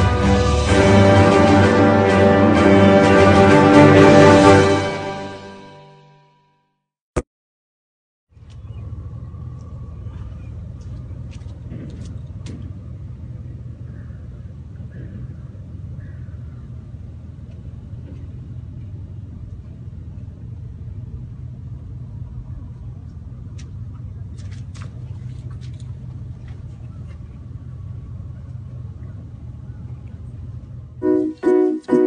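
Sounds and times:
low engine hum: 0:08.3 - 0:32.0.

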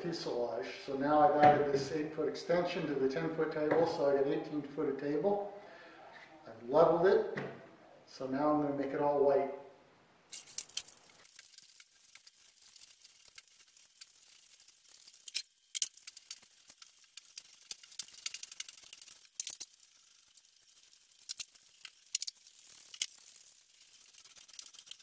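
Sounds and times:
paint roller rolling: 0:10.3 - 0:25.0.

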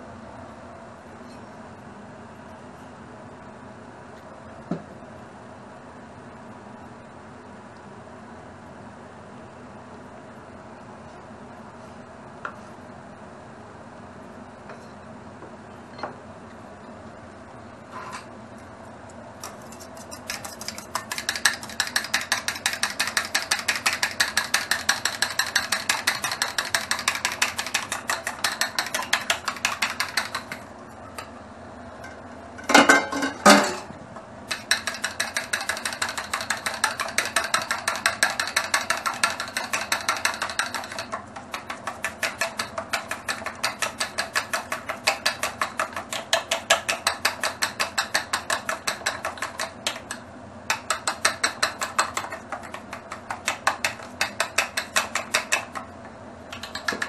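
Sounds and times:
chopsticks whisking eggs in metal bowl: 0:19.4 - 0:30.7, 0:34.5 - 0:55.8.

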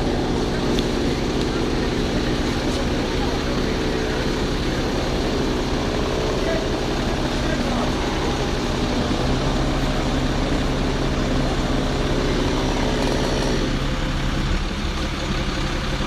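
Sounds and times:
diesel engine humming: 0:00.0 - 0:16.0
rushing mechanical noise: 0:00.0 - 0:16.0.

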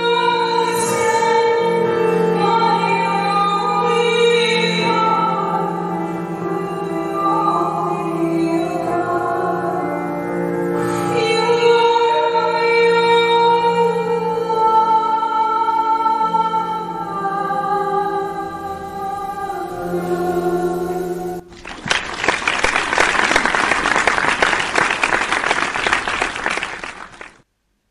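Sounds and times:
piano accompaniment: 0:00.0 - 0:26.9
audience applause: 0:21.5 - 0:27.4.

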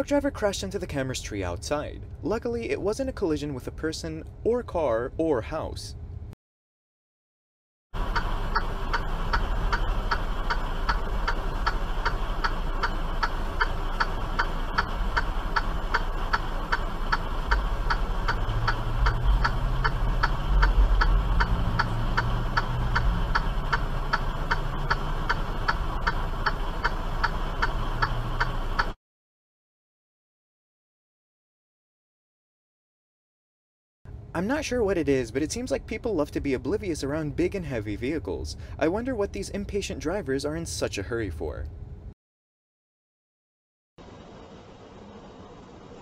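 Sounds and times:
indicator flasher ticking: 0:08.0 - 0:29.0
truck engine rumble: 0:08.0 - 0:29.0.

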